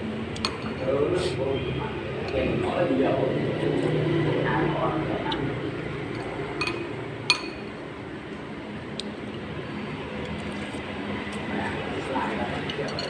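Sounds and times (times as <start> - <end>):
steady background noise: 0.0 - 13.0
metal spoon clinking ceramic bowl: 6.6 - 7.7, 12.7 - 13.0.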